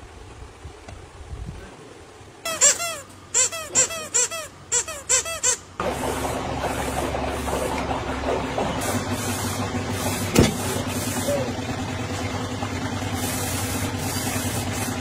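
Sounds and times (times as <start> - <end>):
squeaky toy squeaking: 2.4 - 5.7
steady machine hum: 5.6 - 15.0.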